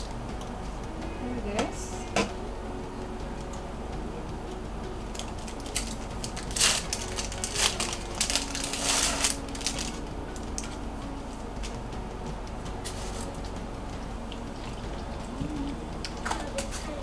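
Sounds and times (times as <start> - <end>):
wrapper crinkling: 5.1 - 10.8.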